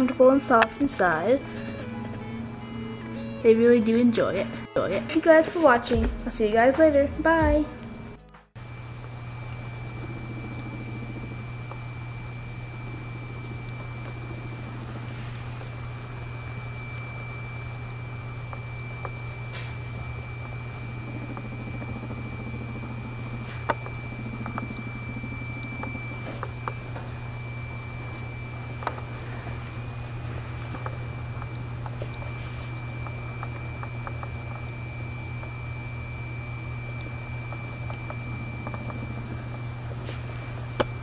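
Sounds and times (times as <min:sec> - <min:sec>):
faint high whine: 0:00.0 - 0:06.0, 0:07.2 - 0:41.0
low hum: 0:00.0 - 0:41.0
small clicks and taps: 0:33.0 - 0:34.6, 0:37.0 - 0:39.6.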